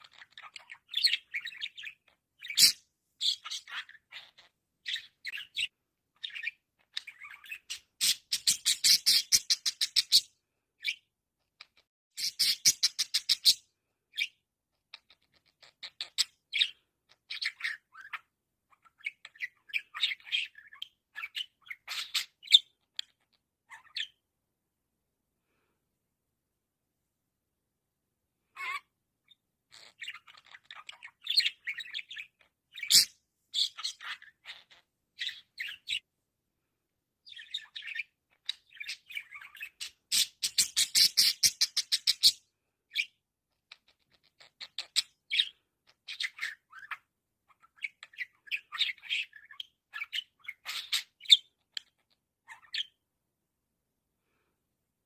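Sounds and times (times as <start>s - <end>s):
budgerigar chattering: 0.0s - 10.2s.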